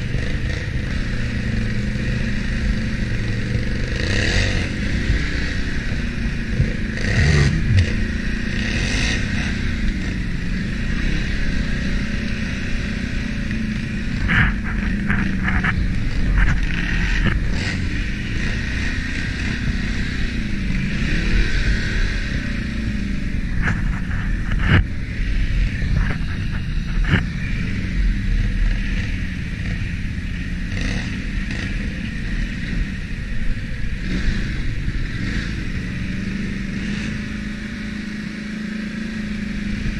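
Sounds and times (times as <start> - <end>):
atv engine running: 0.0 - 39.9
knocks and rattles over rough ground: 13.5 - 19.9, 23.5 - 27.6.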